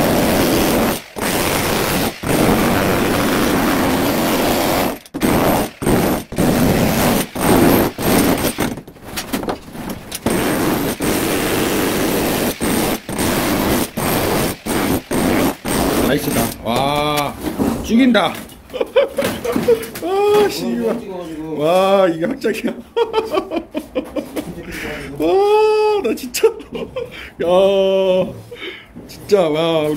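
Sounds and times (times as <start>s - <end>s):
demolition hammer chiselling concrete: 0.0s - 17.3s.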